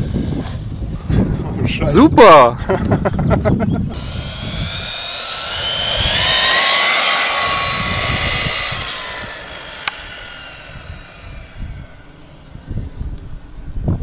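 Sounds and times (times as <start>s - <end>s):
rc car motor whining: 4.0s - 12.4s.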